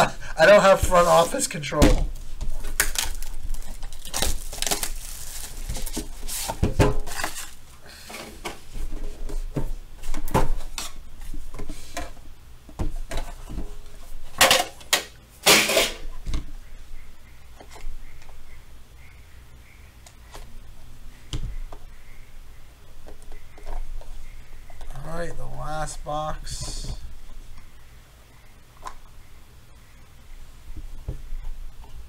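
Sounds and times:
cardboard sleeve scraping and rustling: 2.2 - 7.6.

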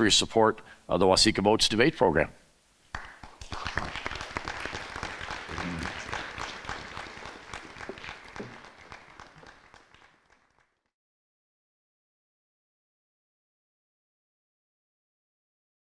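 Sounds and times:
audience applauding: 2.9 - 10.9.

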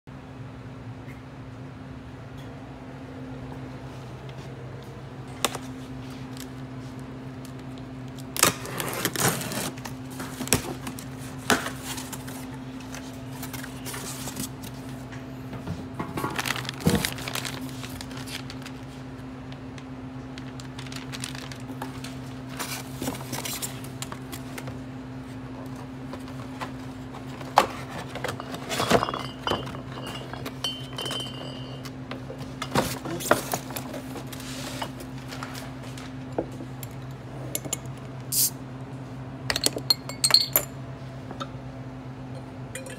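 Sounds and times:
steady low hum: 0.1 - 42.9
packing tape slit: 8.2 - 10.6
packaging rustling and knocking: 16.1 - 18.7
glass bottles clinking: 27.8 - 33.4, 39.5 - 40.8, 42.4 - 42.9.

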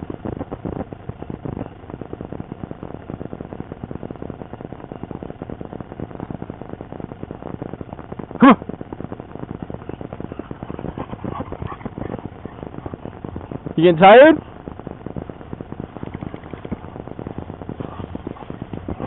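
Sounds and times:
dog barking: 9.8 - 13.2
dogs clicking and scuffling: 10.3 - 13.6, 16.0 - 16.8.

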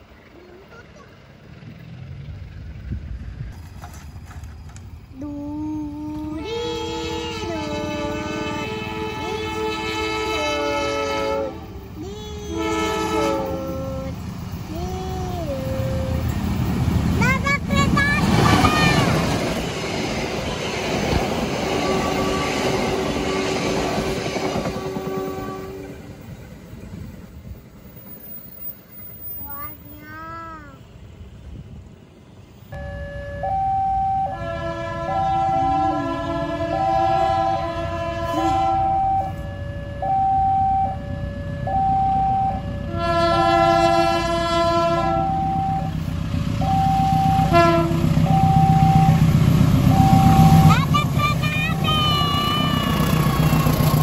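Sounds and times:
locomotive horn: 6.4 - 11.9, 12.5 - 14.2, 21.7 - 26.1, 32.8 - 46.0, 46.6 - 49.2
train wheels clattering on rails: 16.3 - 29.4
level crossing alarm two tones: 32.8 - 34.4, 38.8 - 42.8, 45.2 - 46.0, 46.6 - 47.5, 48.3 - 49.3, 49.9 - 50.9.

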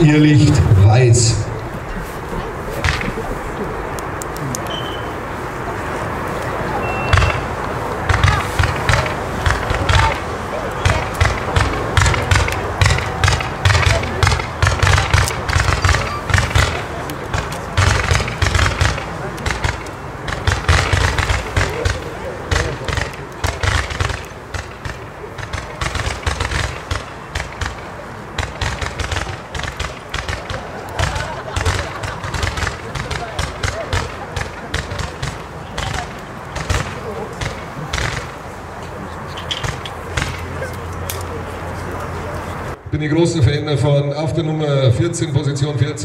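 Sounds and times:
roman candle firework pops: 2.8 - 3.2, 7.1 - 38.4.

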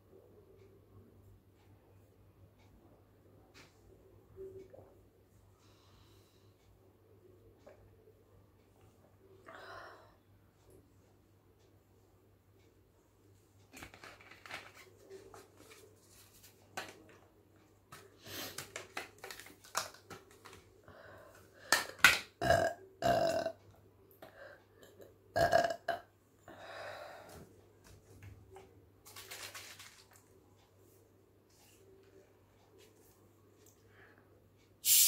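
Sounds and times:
woman burping: 22.4 - 23.6, 24.8 - 26.1.

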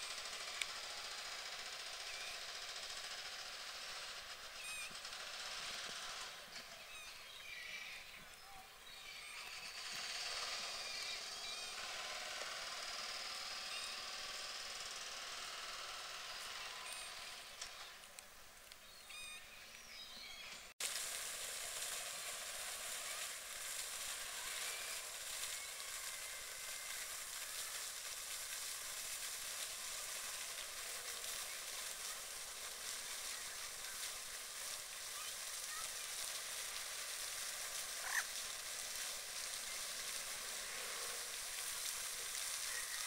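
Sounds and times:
steady outdoor hiss: 0.0 - 43.0
faint high chirps: 18.8 - 20.7.

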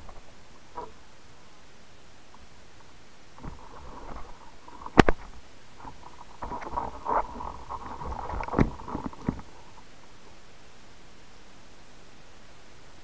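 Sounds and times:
small clicks and crackles: 2.3 - 10.1.

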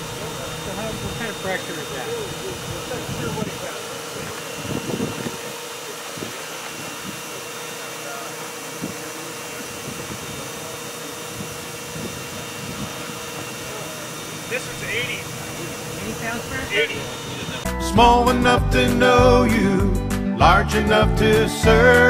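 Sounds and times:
machine hum: 0.0 - 22.0
steady whine: 0.0 - 22.0
spray jets hissing: 0.1 - 17.7.

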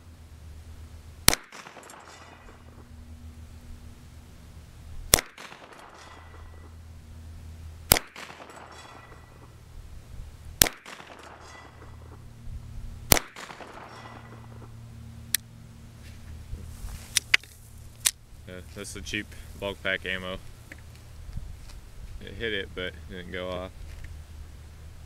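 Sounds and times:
pistol shots: 1.2 - 2.8, 5.1 - 6.8, 7.9 - 9.6, 10.6 - 12.2, 13.1 - 14.7.

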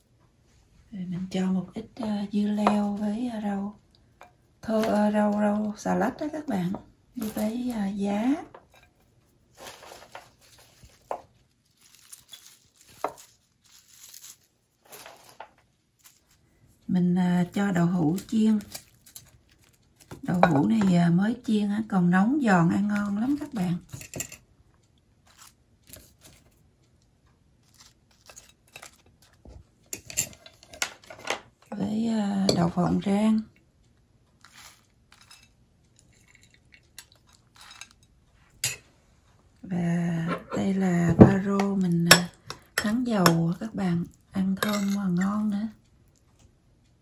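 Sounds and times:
rustling of leafy greens: 9.5 - 16.4, 34.4 - 35.3.

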